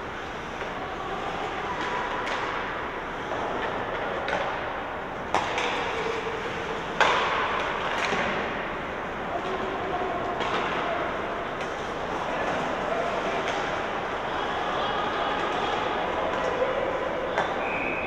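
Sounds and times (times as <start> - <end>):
arena background noise: 0.0 - 18.0
puck and sticks knocking: 7.0 - 8.6.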